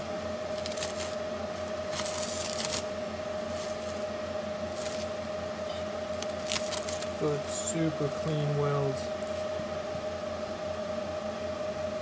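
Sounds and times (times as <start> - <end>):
high-pitched equipment hum: 0.0 - 12.0
plastic wrapping crinkling: 0.5 - 1.2, 1.9 - 2.9, 6.1 - 7.2.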